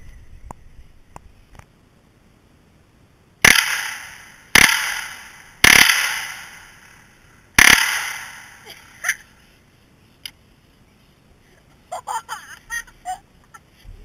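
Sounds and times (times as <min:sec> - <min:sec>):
rifle shots: 0:03.4 - 0:08.9.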